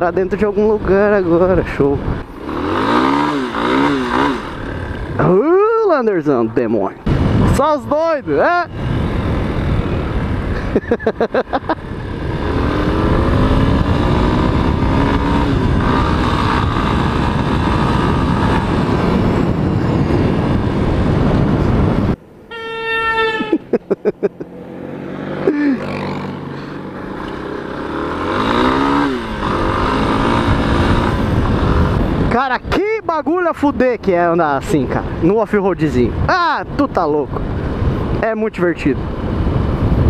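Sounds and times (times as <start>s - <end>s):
wind rush on microphone: 0.0s - 5.3s, 6.5s - 22.3s, 27.4s - 40.0s
motorcycle engine: 0.0s - 5.8s, 6.4s - 33.0s
horn: 22.5s - 23.6s.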